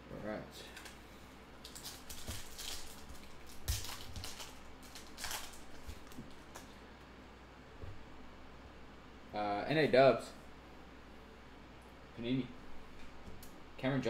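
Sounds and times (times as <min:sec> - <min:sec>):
foil wrapper crinkling and tearing: 0:01.6 - 0:06.6.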